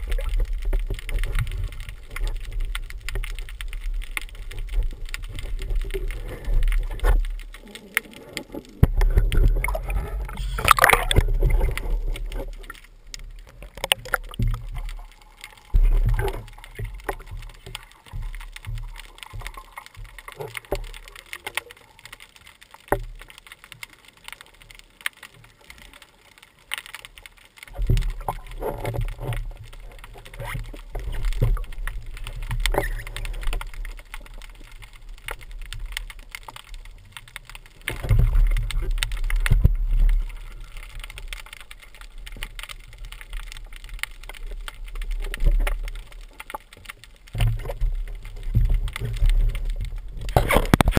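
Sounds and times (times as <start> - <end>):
low underwater rumble: 0.0 - 20.9
small clicks and crackles: 0.0 - 51.0.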